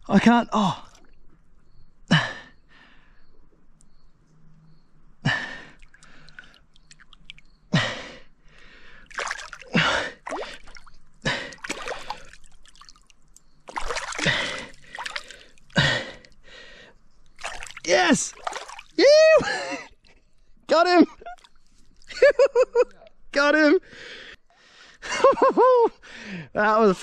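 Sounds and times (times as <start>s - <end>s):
water splashing and dripping: 5.3s - 7.7s, 8.6s - 16.6s, 17.2s - 19.6s
person gasping breaths: 9.7s - 12.4s, 14.0s - 17.0s, 26.0s - 26.5s.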